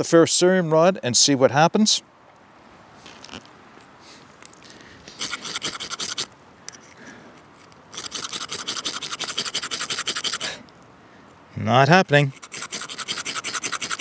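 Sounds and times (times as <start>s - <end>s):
rasping scrapes of fire striker rod: 5.1s - 10.6s, 12.1s - 14.0s.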